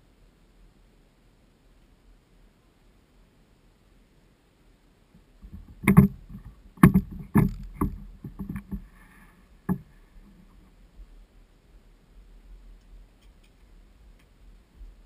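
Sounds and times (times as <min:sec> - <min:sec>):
loud sharp knocks and thumps: 0:05.4 - 0:09.9.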